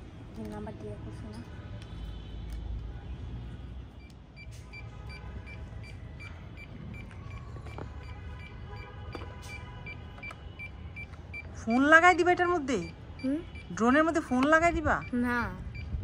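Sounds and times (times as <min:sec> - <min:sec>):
high electronic beeps: 0:09.5 - 0:16.0.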